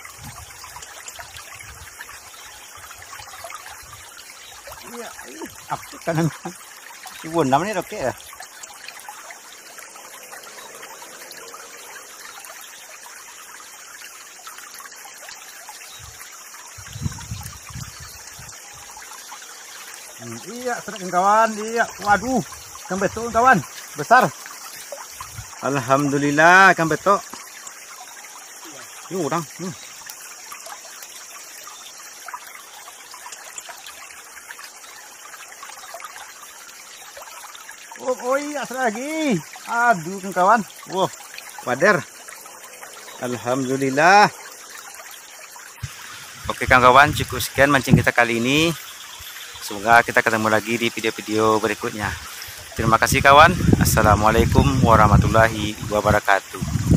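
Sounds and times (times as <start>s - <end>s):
stream trickling: 0.0s - 56.9s
steady high hiss: 38.0s - 56.8s.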